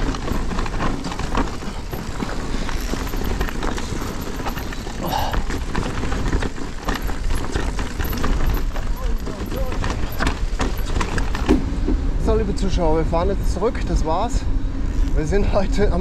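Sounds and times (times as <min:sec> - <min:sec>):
tyres crunching on loose ground: 0:00.0 - 0:12.6
bike rattling: 0:00.0 - 0:16.0
steady rumble: 0:00.0 - 0:16.0.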